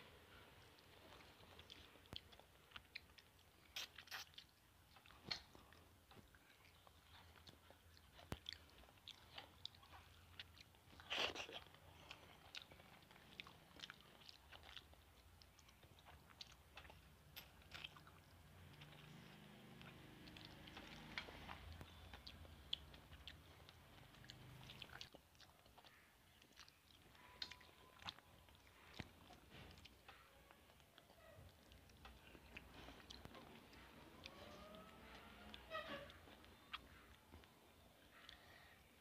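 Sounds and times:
person chewing: 0.3 - 39.0.

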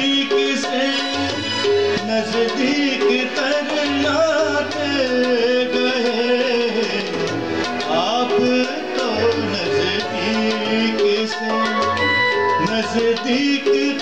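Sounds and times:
electronic keyboard: 0.0 - 14.0
harmonium: 0.0 - 14.0
man singing: 0.0 - 14.0
tabla drumming: 0.0 - 14.0.

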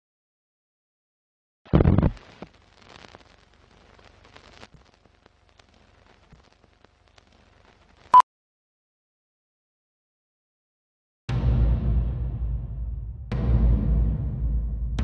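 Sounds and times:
faint hiss: 2.0 - 8.1
film clicks and crackles: 2.1 - 8.1.

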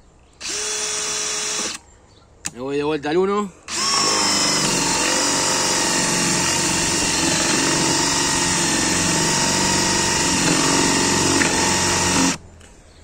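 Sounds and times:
cordless drill boring into wood: 0.4 - 1.8, 3.7 - 12.4.

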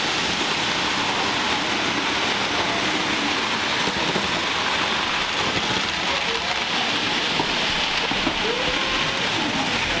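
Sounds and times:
model trains rushing hiss: 0.0 - 10.0.

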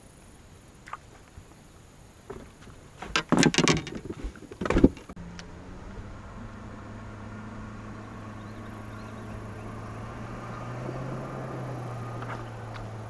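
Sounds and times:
gear knocking and clattering on deck: 2.3 - 5.2
electric trolling motor humming: 5.2 - 13.0.

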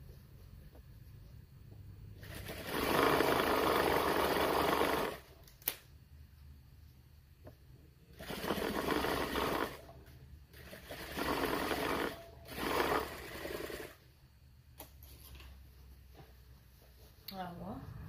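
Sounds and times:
sewing machine stitching: 2.2 - 5.4, 8.1 - 9.9, 10.5 - 14.0.

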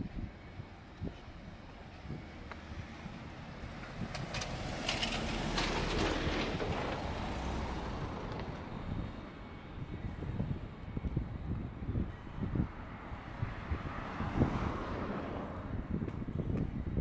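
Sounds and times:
vehicle passing by: 2.1 - 9.1, 12.4 - 16.2.

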